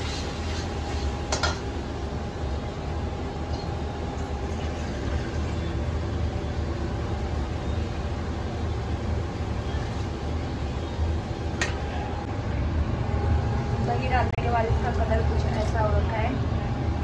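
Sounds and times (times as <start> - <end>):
steady low rumble: 5.8 - 17.0.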